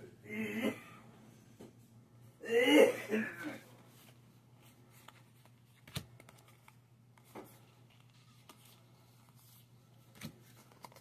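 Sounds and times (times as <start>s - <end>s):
low steady hum: 0.0s - 11.0s
cards clicking and rustling: 4.9s - 11.0s.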